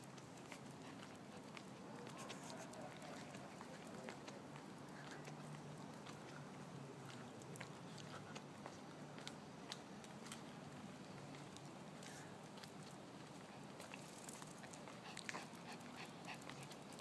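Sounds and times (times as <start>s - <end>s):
light clicks and ticks: 7.1s - 10.5s.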